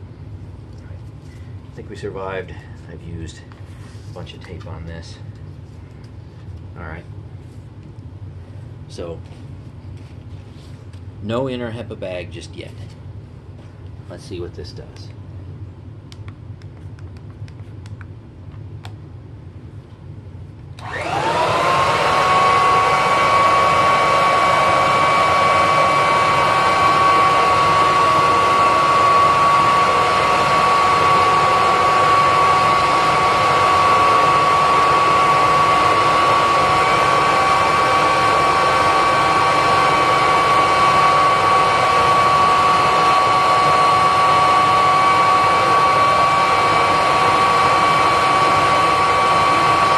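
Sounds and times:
vacuum cleaner motor whine: 20.8 - 49.9.

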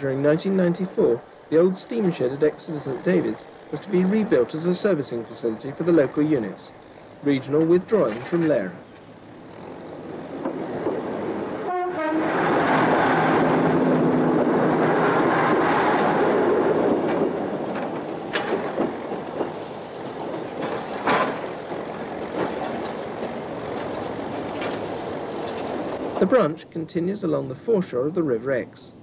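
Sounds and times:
diesel train passing: 0.0 - 28.4
train horn blast: 11.6 - 12.8.

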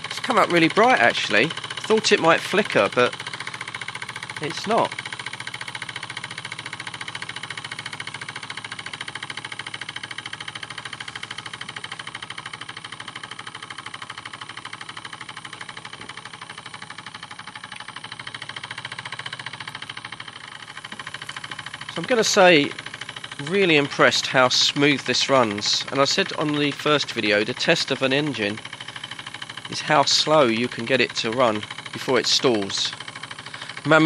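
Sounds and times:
model steam engine running: 0.0 - 34.0.

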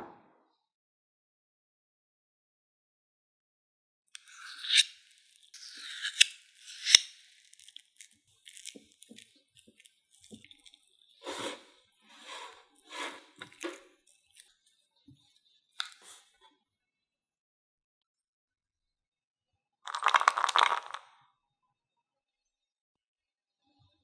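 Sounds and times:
spoon squishing and scraping yogurt: 4.2 - 16.4.

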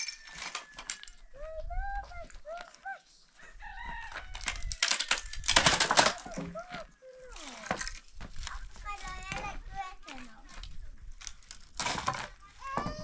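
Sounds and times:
wooden poles clattering: 0.0 - 1.2, 4.4 - 13.0
chickens calling: 0.0 - 7.0.

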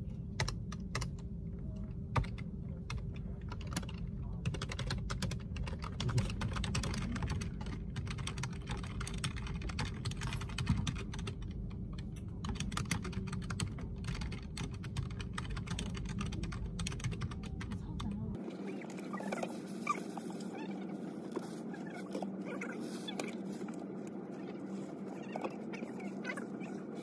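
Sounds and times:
steady low hum: 0.0 - 27.0
fast keyboard typing: 0.4 - 1.2, 2.1 - 27.0.

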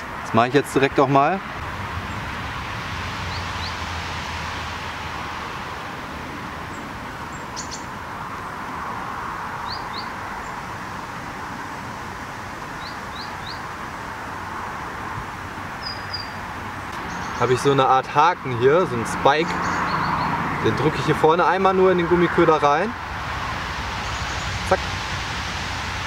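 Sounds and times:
small bird chirping: 6.7 - 7.9, 9.6 - 10.6, 12.8 - 13.7, 15.8 - 17.6, 19.5 - 20.4.

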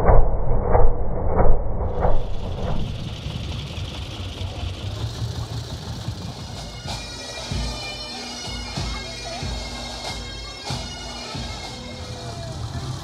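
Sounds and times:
drum beats: 2.4 - 13.0
bagpipes playing: 4.8 - 13.0.

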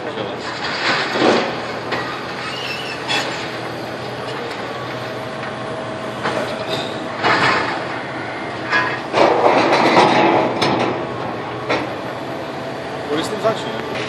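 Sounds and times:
excavator engine running: 0.0 - 14.0
loud metal crashes: 0.4 - 3.6, 6.2 - 7.9, 8.7 - 11.0
metal screeching and scraping: 0.4 - 4.4, 6.2 - 10.5.

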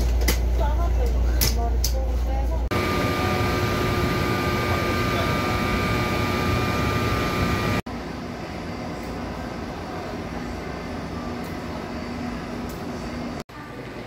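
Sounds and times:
electric locomotive humming: 2.7 - 7.8.

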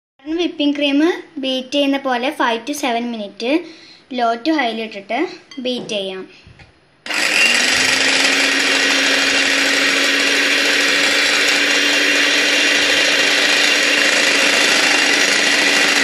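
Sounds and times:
electric hand mixer whirring: 7.0 - 16.0.

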